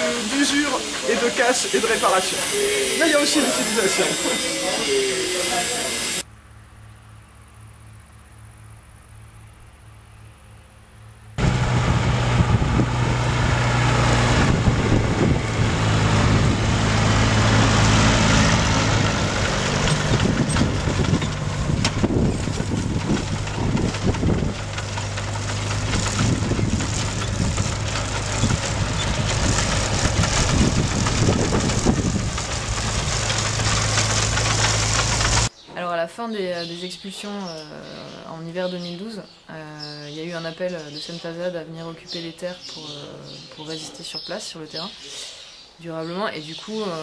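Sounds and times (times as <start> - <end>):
tractor diesel engine running: 0.0 - 6.3, 11.3 - 35.5
harvester mechanism rattling: 12.4 - 35.5.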